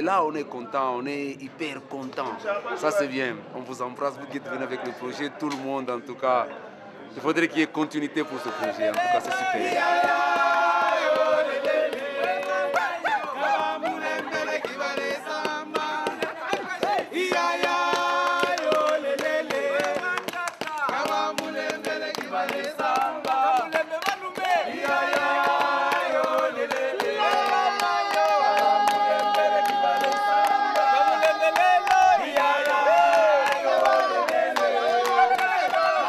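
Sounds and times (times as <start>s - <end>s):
voices singing bending notes: 8.5s - 36.0s.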